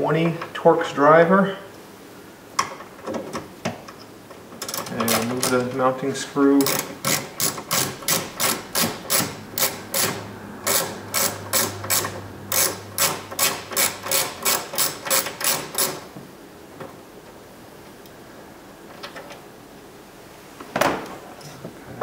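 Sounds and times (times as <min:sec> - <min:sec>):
ratcheting screwdriver clicking: 0:06.6 - 0:16.0.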